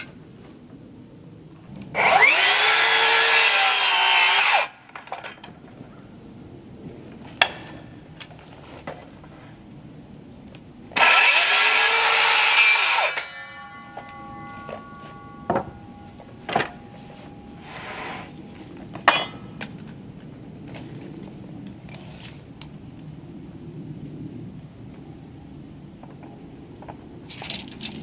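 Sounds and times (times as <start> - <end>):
circular saw cutting wood: 1.9 - 4.8, 11.0 - 19.4
saw blade ringing: 11.0 - 20.2.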